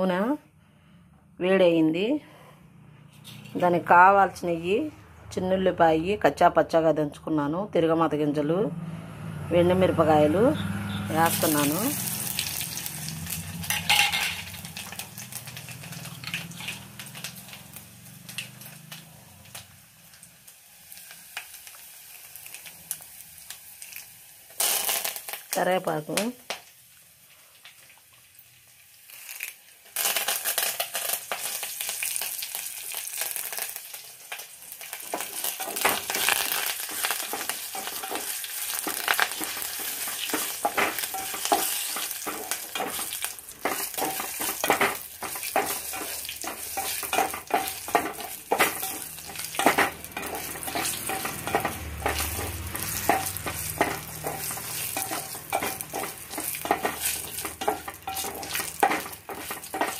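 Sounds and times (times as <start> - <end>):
food sizzling in hot oil: 10.4 - 59.9
spatula scraping a pot: 36.9 - 59.9.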